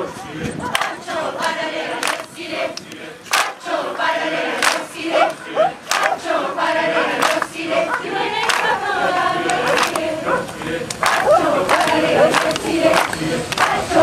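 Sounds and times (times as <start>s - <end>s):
choir singing: 0.0s - 14.0s
sharp hand claps: 2.0s - 3.6s, 4.6s - 6.2s, 7.2s - 7.5s, 8.4s - 8.7s, 9.4s - 10.0s, 10.9s - 13.8s.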